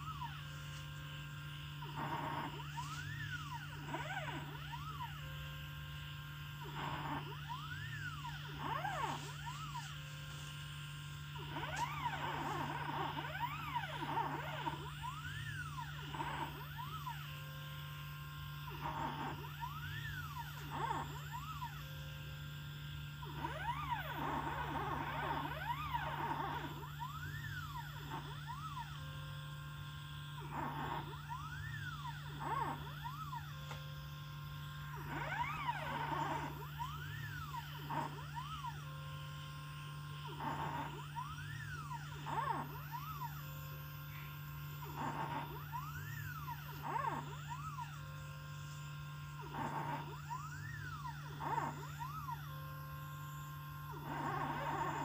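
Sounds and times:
steady low hum: 0:00.0 - 0:55.0
stepper motors whining: 0:00.0 - 0:55.0.

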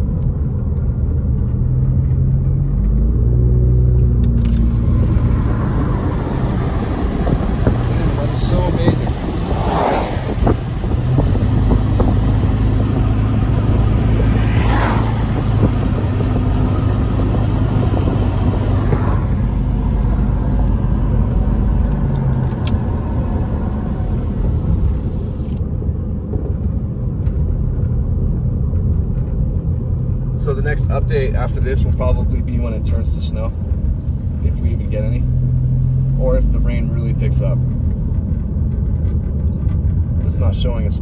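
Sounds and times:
car engine hum: 0:00.0 - 0:41.0
tyre noise on wet road: 0:04.3 - 0:25.6.

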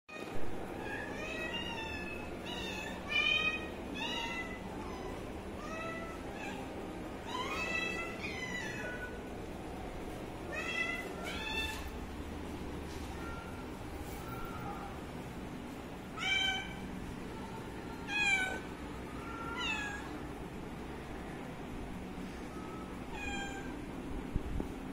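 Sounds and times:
kittens meowing: 0:00.7 - 0:09.3, 0:18.0 - 0:20.2, 0:22.8 - 0:23.9.

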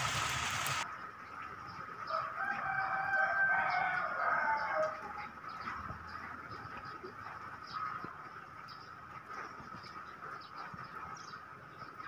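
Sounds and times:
heavy rain: 0:00.0 - 0:00.8
rooster crowing: 0:02.1 - 0:05.1.

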